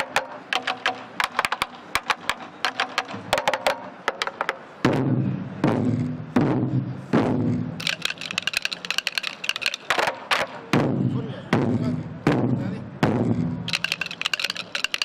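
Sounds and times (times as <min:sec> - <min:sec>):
rapid clatter of drumsticks: 0:00.0 - 0:04.6, 0:07.8 - 0:10.6, 0:13.7 - 0:15.0
barrel drums struck in unison: 0:00.0 - 0:07.8, 0:10.3 - 0:13.7.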